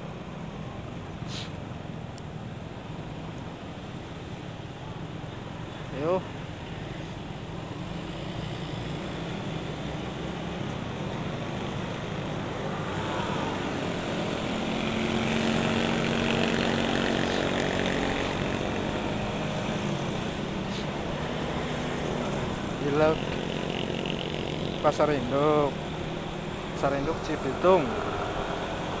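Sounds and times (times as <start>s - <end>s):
motorcycle engine running: 22.1s - 26.7s.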